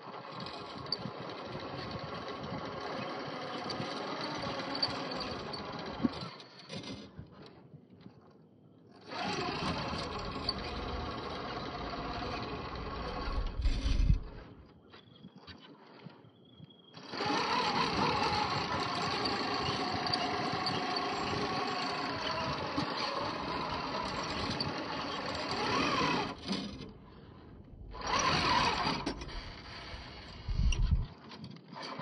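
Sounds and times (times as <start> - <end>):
electric motor whining: 9.0 - 14.5, 17.0 - 27.2, 27.8 - 31.1.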